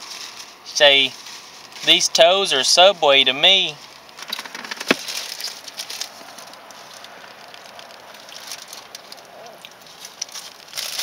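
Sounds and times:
paper wrapper crinkling: 0:00.0 - 0:02.0, 0:03.8 - 0:11.0
soft steady hiss: 0:00.0 - 0:04.2.

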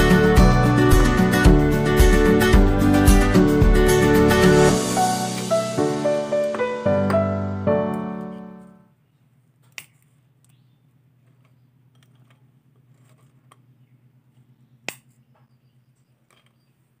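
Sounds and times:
piano music: 0:00.0 - 0:08.9.

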